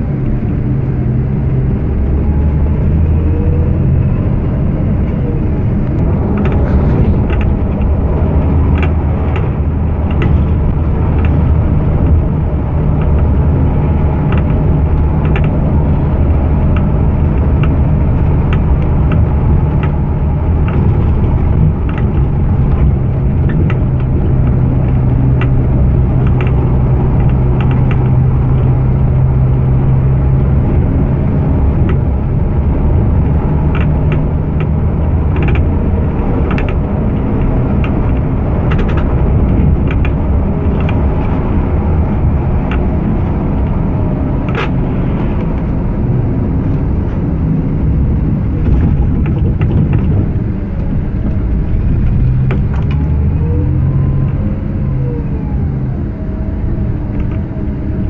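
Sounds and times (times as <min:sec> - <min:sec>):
bus diesel engine drone: 0:00.0 - 0:58.0
light rattling clicks: 0:05.0 - 0:29.1, 0:31.1 - 0:46.2.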